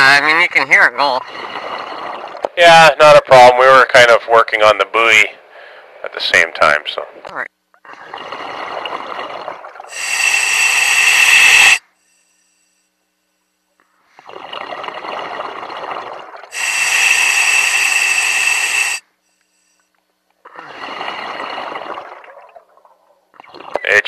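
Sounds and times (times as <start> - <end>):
diver breathing through regulator: 9.9 - 13.0, 16.5 - 19.9.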